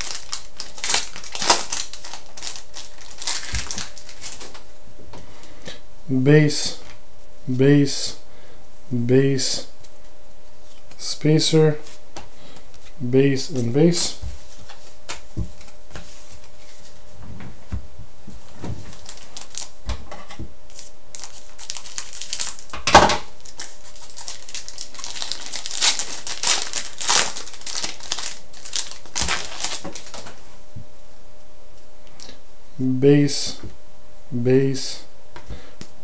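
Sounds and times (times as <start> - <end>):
scissors cutting wrapper: 0.0 - 4.6, 20.7 - 22.7, 23.4 - 30.3
wrapper crinkling and tearing: 0.0 - 4.6, 18.8 - 19.7, 20.7 - 22.8, 23.4 - 30.4.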